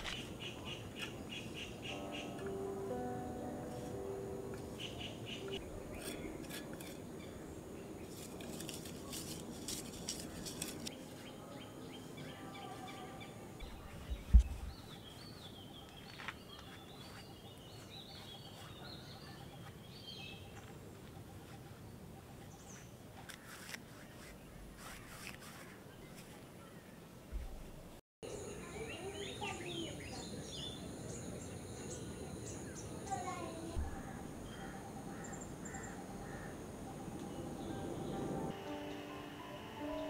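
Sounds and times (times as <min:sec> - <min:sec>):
wild birds chirping: 0:10.2 - 0:23.6, 0:28.3 - 0:38.9.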